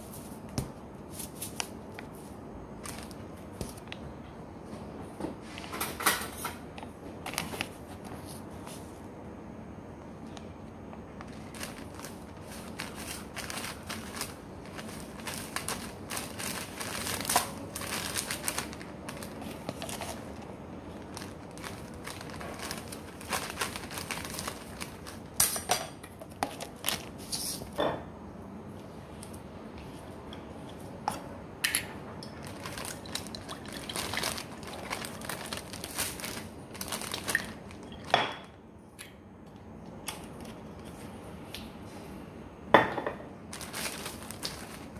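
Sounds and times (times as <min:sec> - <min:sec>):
plastic bag crinkling: 0:02.8 - 0:03.9, 0:11.2 - 0:25.4, 0:26.4 - 0:27.4, 0:32.3 - 0:38.4, 0:43.5 - 0:44.9.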